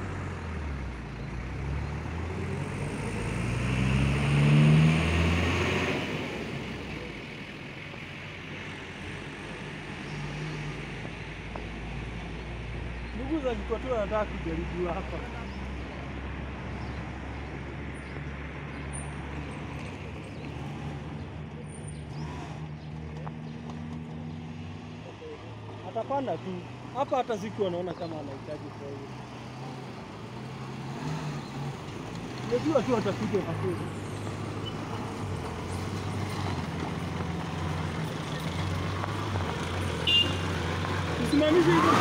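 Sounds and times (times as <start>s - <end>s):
car engine running steadily: 40.0s - 40.4s.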